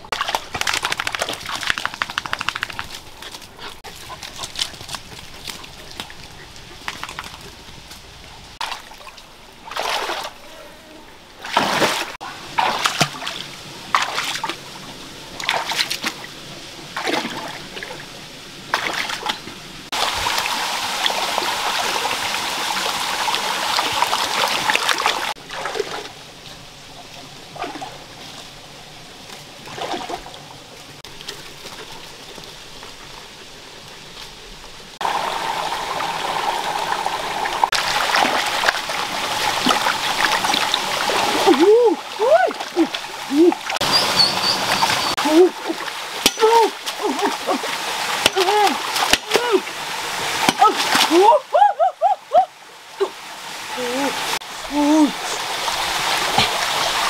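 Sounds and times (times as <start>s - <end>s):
water splashing: 0.0s - 57.0s
trickling running water: 11.4s - 57.0s.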